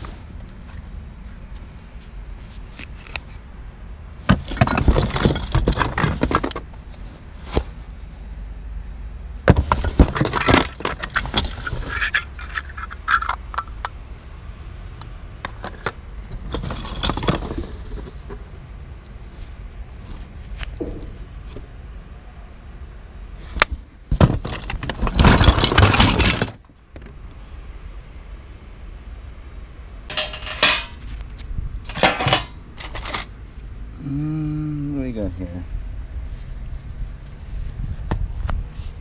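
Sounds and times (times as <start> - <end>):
objects clattering in cardboard box: 4.2 - 6.8, 9.5 - 13.8, 15.5 - 18.5, 24.1 - 26.6, 31.9 - 33.3.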